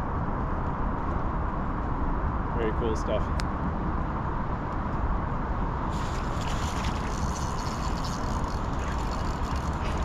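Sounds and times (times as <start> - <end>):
wind rumbling on microphone: 0.0 - 10.0
hiss with rapid crackling: 5.9 - 10.0.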